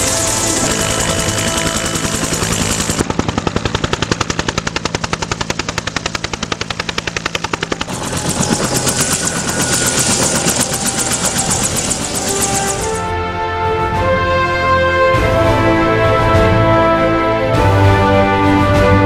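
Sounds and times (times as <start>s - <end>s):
helicopter rotor chopping: 0.0s - 13.4s
turbine drone: 0.0s - 14.1s.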